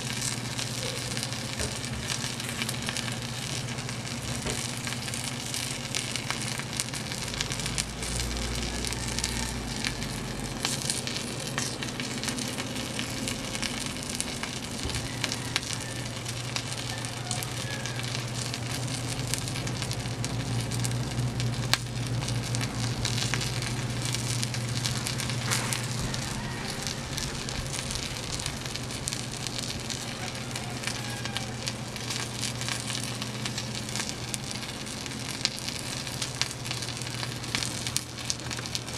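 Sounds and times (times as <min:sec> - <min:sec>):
low steady hum: 0:00.0 - 0:38.9
wood fire crackling and popping: 0:00.0 - 0:38.9.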